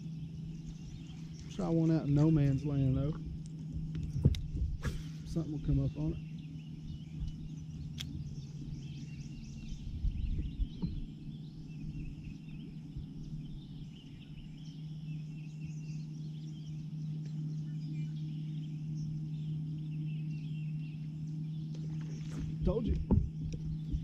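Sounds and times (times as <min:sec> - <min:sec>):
birds chirping: 0:00.0 - 0:24.0
steady low hum: 0:00.0 - 0:24.0
dull low thuds: 0:01.8 - 0:06.1, 0:09.4 - 0:12.2, 0:22.2 - 0:24.0.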